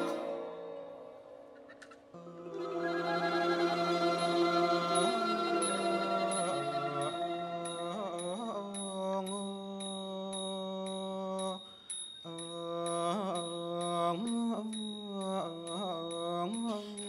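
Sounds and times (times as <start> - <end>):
person singing long held notes: 2.2 - 11.6
small cymbals ticking: 4.9 - 17.0.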